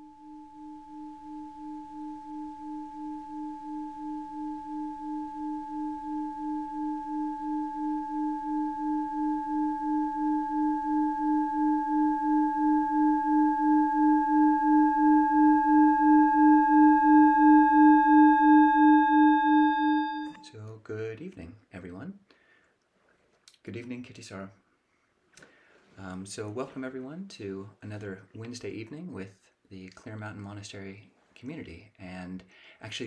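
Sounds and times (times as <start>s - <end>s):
singing bowl hum: 0.0s - 20.4s.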